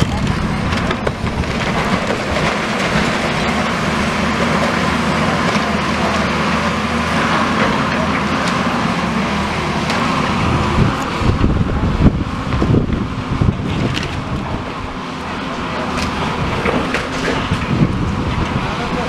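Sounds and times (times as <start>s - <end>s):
wind buffeting microphone: 0.0s - 3.6s, 10.1s - 15.0s, 16.2s - 19.0s
diesel excavator engine running: 0.0s - 19.0s.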